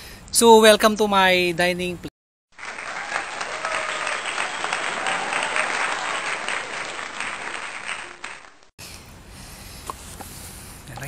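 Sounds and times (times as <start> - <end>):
crowd applause: 2.5 - 8.7.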